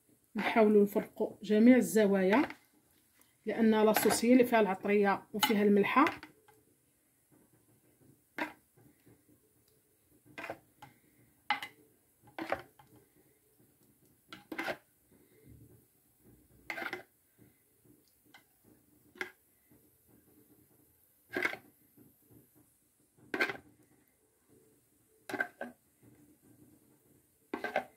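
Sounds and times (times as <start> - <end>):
faint wet scraping: 1.8 - 6.6, 8.3 - 9.2, 10.3 - 15.7, 16.6 - 19.7, 21.3 - 21.7, 23.3 - 24.1, 25.3 - 26.2, 27.5 - 27.9.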